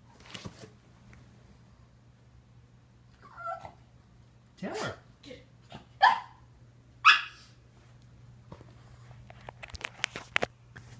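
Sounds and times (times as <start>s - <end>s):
dog barking: 5.7s - 6.4s, 7.0s - 7.5s.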